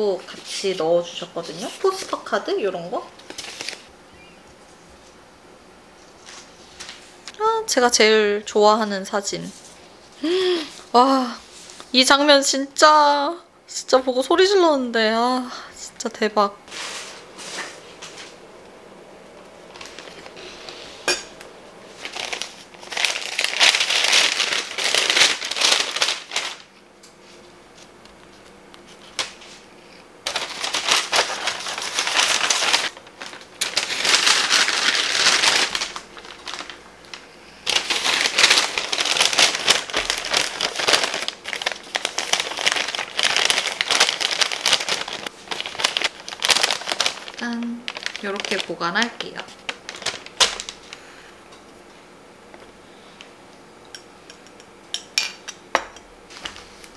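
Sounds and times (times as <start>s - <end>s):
paper bag rustling and crinkling: 3.1s - 3.9s, 19.6s - 21.0s, 21.8s - 27.4s, 28.8s - 51.0s.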